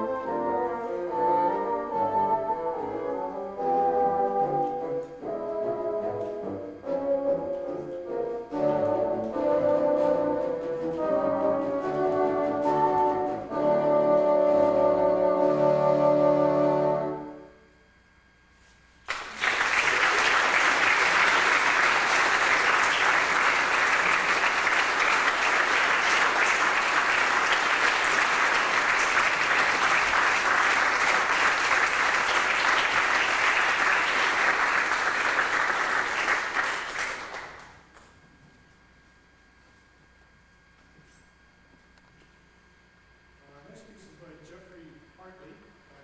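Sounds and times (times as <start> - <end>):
bassoons holding a chord: 0.0 - 17.8
audience applauding: 19.0 - 38.0.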